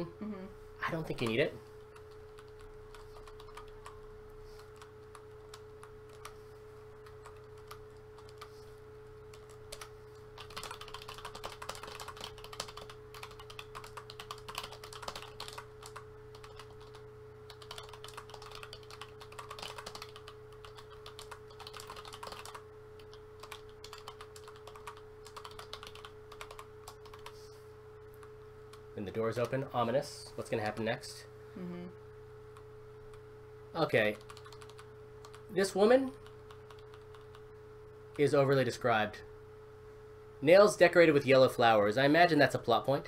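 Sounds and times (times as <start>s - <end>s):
faint steady hum: 0.0s - 43.0s
typing on computer keyboard: 2.0s - 4.0s, 4.6s - 6.4s, 7.0s - 8.5s, 9.3s - 27.4s, 34.1s - 35.4s, 36.2s - 37.4s.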